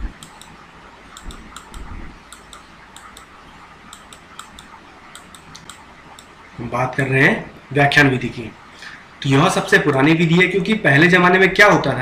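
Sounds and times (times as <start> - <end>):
stylus tapping on touchscreen: 3.9 - 6.3.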